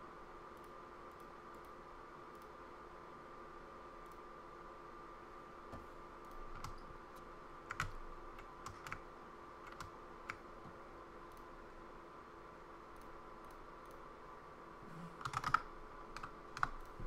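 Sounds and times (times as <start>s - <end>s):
steady background hum: 0.0s - 17.0s
keyboard keys clicking: 7.7s - 9.0s, 9.6s - 10.4s, 15.2s - 17.0s.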